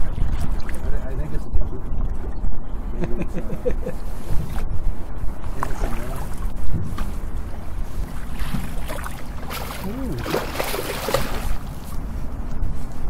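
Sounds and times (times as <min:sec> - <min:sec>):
river water: 0:00.0 - 0:02.3, 0:03.4 - 0:13.0
wind on microphone: 0:00.0 - 0:13.0
fish splashing at surface: 0:08.4 - 0:11.8.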